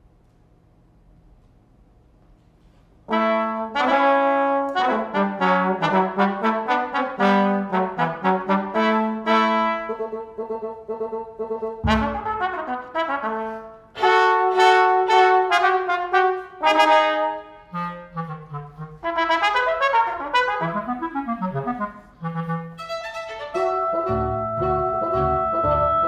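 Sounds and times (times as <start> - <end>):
trumpet: 3.1 - 26.0
chamber ensemble playing: 4.8 - 12.8, 14.0 - 26.0.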